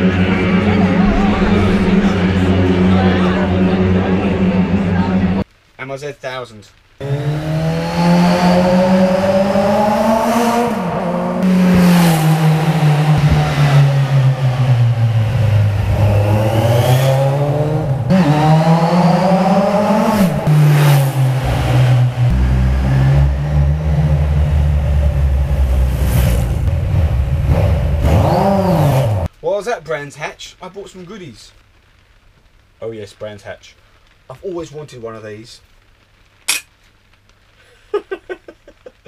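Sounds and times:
motorcycle accelerating past: 7.0s - 29.3s.

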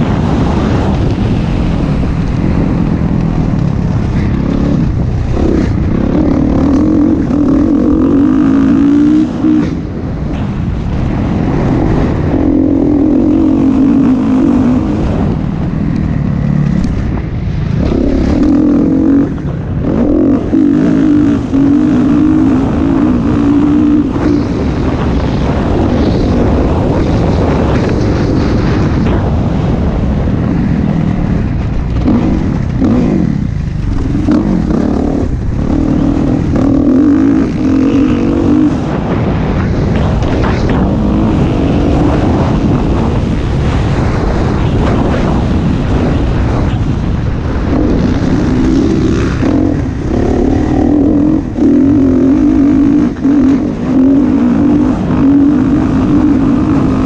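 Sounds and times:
dirt bike engine revving: 0.0s - 57.0s
wind rush on microphone: 0.0s - 57.0s.

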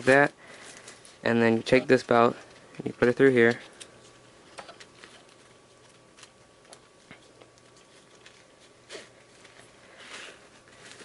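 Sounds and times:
webbing rustles: 0.0s - 11.0s.

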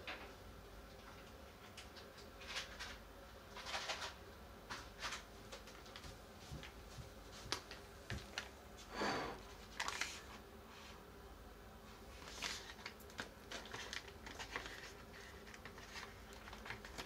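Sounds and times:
plastic pouch crinkling: 9.6s - 10.3s, 12.2s - 17.0s.

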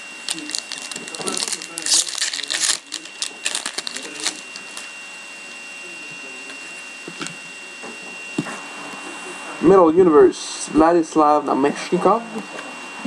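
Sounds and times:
foil wrapper crinkling and tearing: 0.0s - 4.9s.

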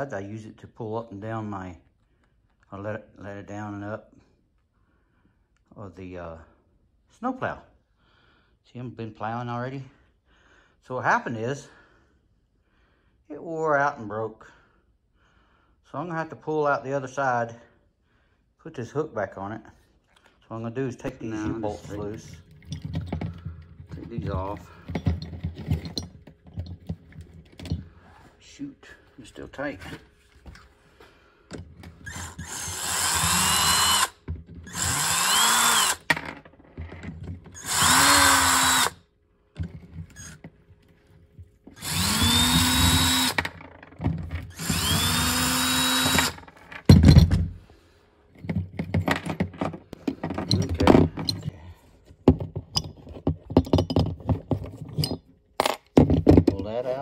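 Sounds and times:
loose metal clinks and knocks: 21.7s - 28.0s, 48.3s - 51.5s, 52.3s - 56.7s
power drill motor whine: 32.0s - 36.1s, 37.6s - 39.0s, 41.8s - 43.5s, 44.5s - 46.4s.

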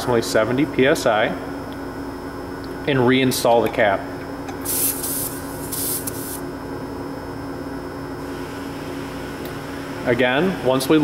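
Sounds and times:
compressed air hissing from tire valve: 4.6s - 6.4s.

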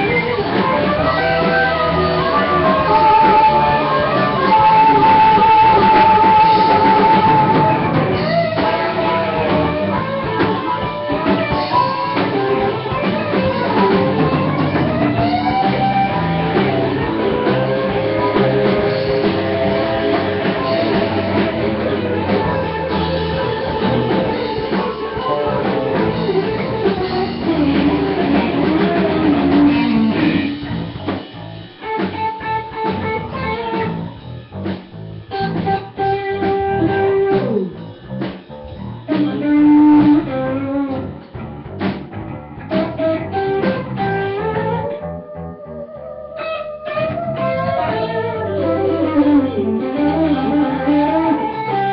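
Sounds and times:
blues-rock band playing: 0.0s - 51.9s
harmonica: 0.1s - 30.3s.

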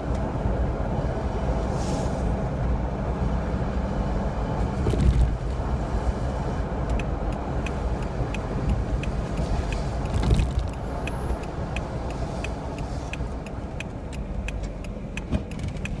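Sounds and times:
car engine and tyre rumble: 0.0s - 16.0s
car bump: 4.8s - 5.5s
turn signal ticking: 6.5s - 16.0s.

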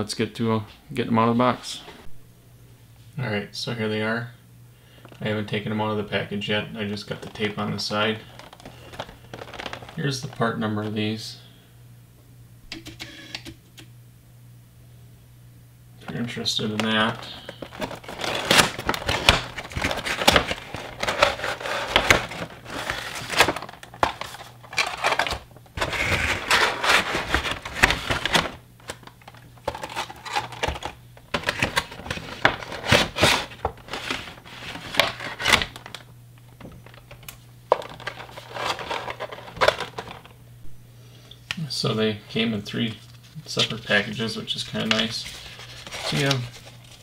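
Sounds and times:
plastic packaging crinkling: 7.1s - 10.4s, 16.8s - 40.4s, 42.9s - 47.0s.

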